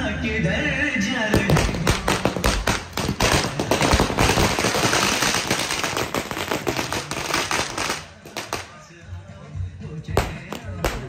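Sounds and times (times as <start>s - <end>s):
firecrackers banging and crackling: 1.3s - 9.0s, 10.1s - 11.0s.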